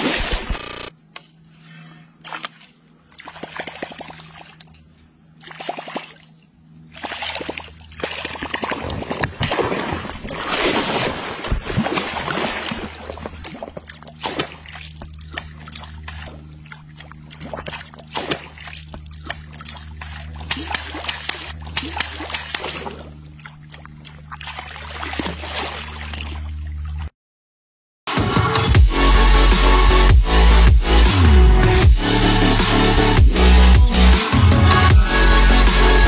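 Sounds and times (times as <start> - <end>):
fish thrashing and splashing: 2.3 - 4.8, 5.4 - 6.3, 6.9 - 27.1.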